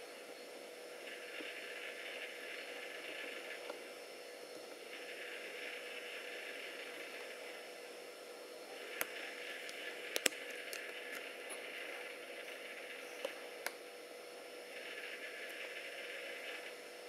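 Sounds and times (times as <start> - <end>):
steady hiss and faint hum: 0.0 - 17.0
sharp clicks: 9.0 - 11.3.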